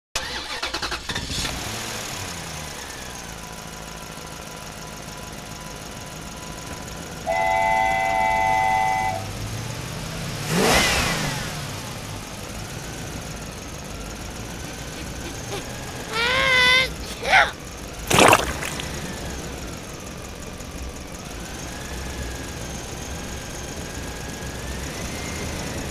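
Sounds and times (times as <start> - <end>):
truck engine hum: 2.8 - 10.6, 11.8 - 18.1, 18.8 - 25.9
truck horn honk: 7.2 - 9.5.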